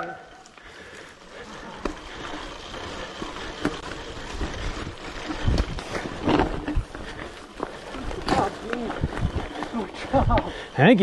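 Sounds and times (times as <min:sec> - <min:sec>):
bike clicks and rattles: 0:00.0 - 0:11.0
bike rolling on dirt: 0:00.0 - 0:11.0
bike thumping over bumps: 0:01.4 - 0:10.5.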